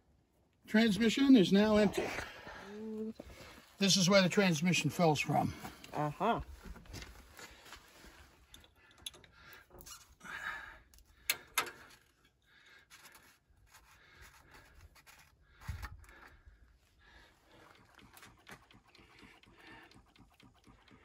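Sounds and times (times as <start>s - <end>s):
wrench clicking and scraping: 11.0s - 12.3s.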